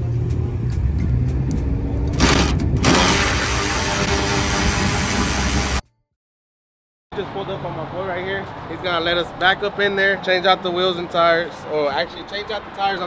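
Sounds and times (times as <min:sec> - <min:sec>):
engine rumbling: 0:00.0 - 0:05.8
loud hiss: 0:02.8 - 0:05.8.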